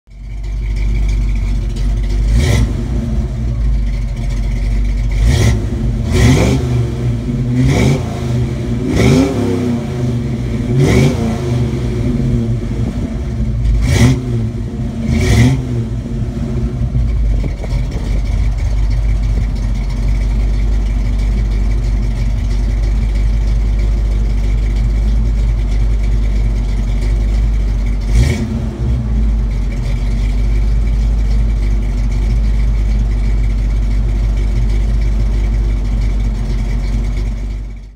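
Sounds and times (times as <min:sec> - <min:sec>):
car engine idling: 0:00.0 - 0:37.9
engine revving sharply: 0:02.3 - 0:03.5, 0:05.2 - 0:18.6, 0:28.1 - 0:29.5.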